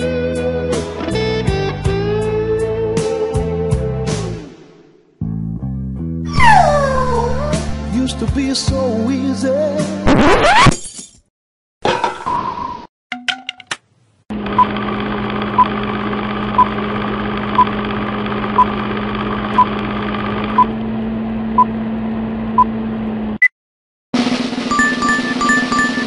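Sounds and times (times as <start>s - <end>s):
film projector whir: 14.3s - 21.1s
higher beep: 24.7s - 26.0s
short beeps: 24.7s - 26.0s.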